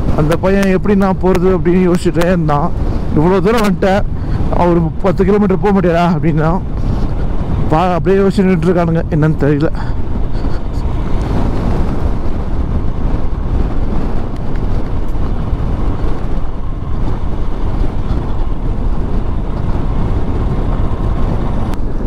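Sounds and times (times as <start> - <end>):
wind buffeting microphone: 0.0 - 22.0
motorcycle engine running: 9.0 - 22.0.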